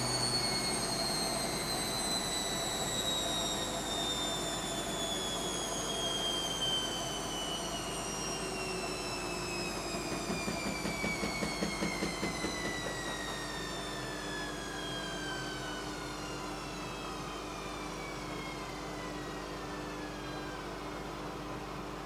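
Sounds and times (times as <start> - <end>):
washing machine motor whine: 0.0 - 22.0.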